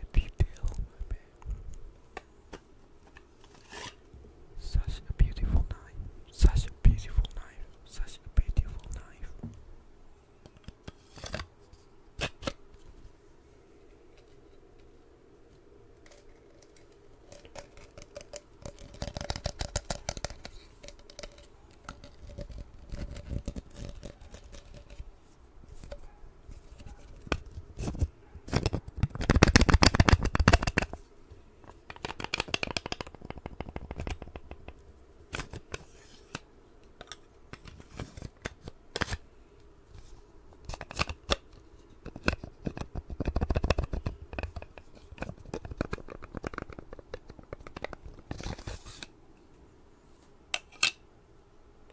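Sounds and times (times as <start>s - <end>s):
scraping and rubbing with clicks: 3.0s - 4.0s, 10.4s - 12.9s, 16.0s - 25.1s, 31.6s - 39.2s, 39.9s - 49.1s
knife sliding in metal sheath: 3.5s - 4.0s.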